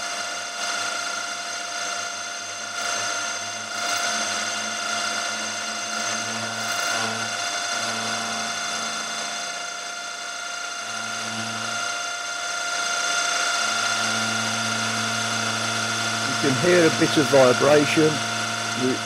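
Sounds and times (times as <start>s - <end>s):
milling machine cutting steel: 0.0s - 19.0s.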